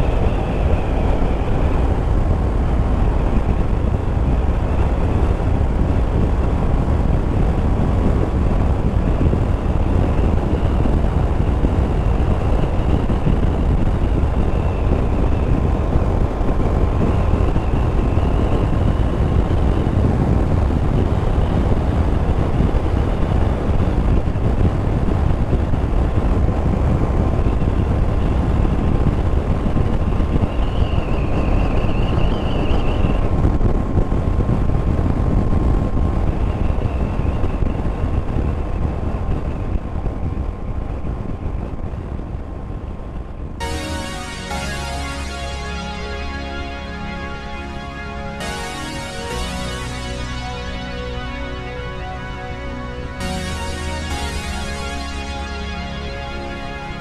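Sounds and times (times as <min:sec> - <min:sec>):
wind rushing over microphone: 0:00.0 - 0:43.7
faint wavering whine: 0:43.6 - 0:57.0.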